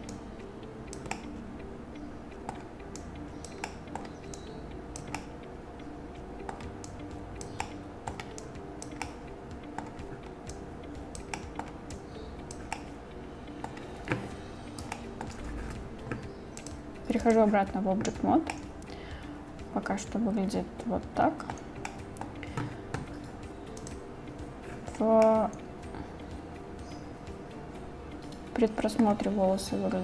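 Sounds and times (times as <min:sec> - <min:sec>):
mouse and keyboard clicks: 0:00.9 - 0:01.3, 0:02.4 - 0:05.3, 0:06.4 - 0:10.6, 0:11.2 - 0:11.8, 0:12.5 - 0:13.0, 0:14.8 - 0:18.7, 0:21.4 - 0:24.0.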